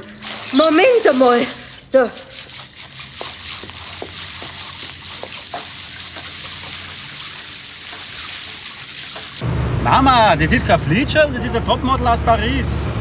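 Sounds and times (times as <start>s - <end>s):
water running: 0.0s - 9.4s.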